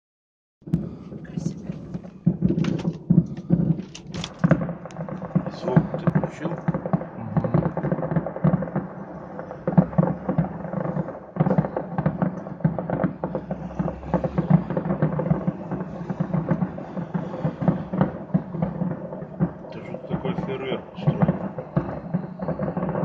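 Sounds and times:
fireworks booming: 0:00.6 - 0:23.0
fireworks crackling: 0:00.7 - 0:23.0.

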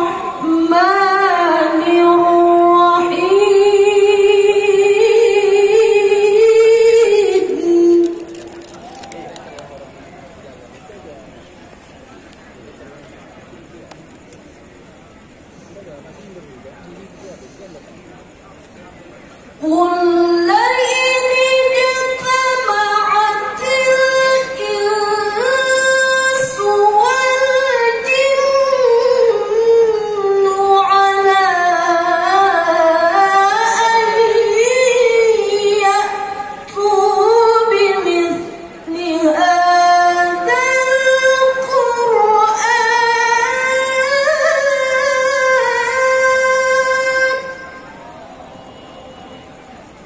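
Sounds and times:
woman reciting melodically: 0:00.0 - 0:08.7, 0:19.6 - 0:47.9.

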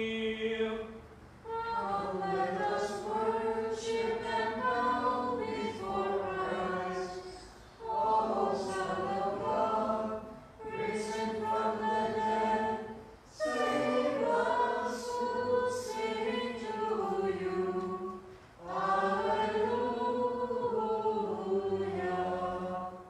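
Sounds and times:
unaccompanied liturgical chant: 0:00.0 - 0:23.0.

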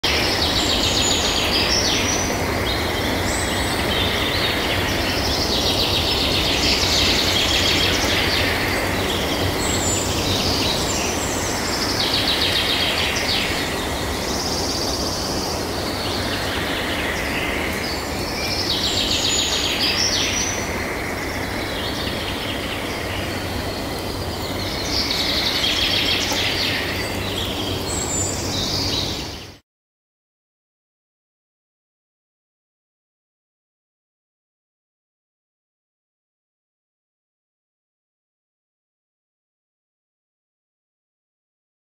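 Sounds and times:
birds singing: 0:00.0 - 0:29.6
outdoor background noise: 0:00.0 - 0:29.6.

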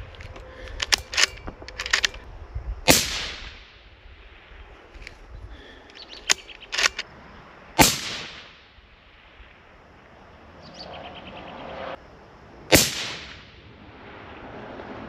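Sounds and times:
gunshot echo: 0:02.9 - 0:03.8, 0:07.8 - 0:08.7, 0:12.7 - 0:13.6
suppressed rifle shots: 0:02.9 - 0:03.8, 0:06.2 - 0:07.1, 0:07.8 - 0:08.7, 0:12.7 - 0:13.6.

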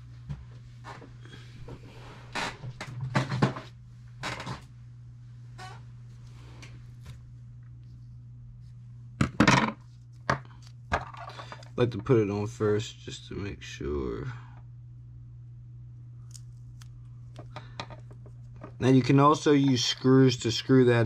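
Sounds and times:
steady low hum: 0:00.0 - 0:21.0
tape rustling and clicking: 0:16.2 - 0:18.8.

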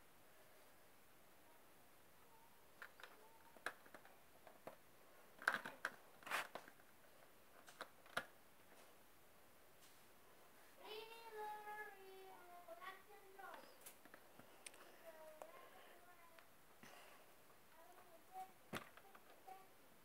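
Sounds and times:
plastic bricks clicking: 0:05.4 - 0:06.8.

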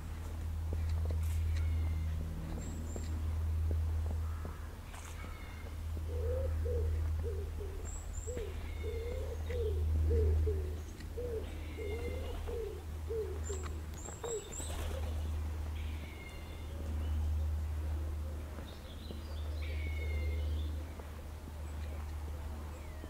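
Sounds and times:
steady low rumble: 0:00.0 - 0:23.0
small birds chirping: 0:00.1 - 0:23.0
pigeon cooing: 0:05.3 - 0:15.4.

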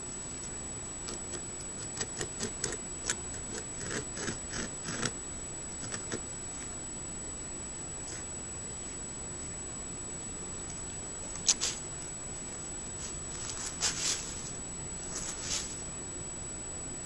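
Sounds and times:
steady hiss: 0:00.0 - 0:16.5
beaver gnawing wood: 0:01.0 - 0:05.2, 0:05.8 - 0:06.2.

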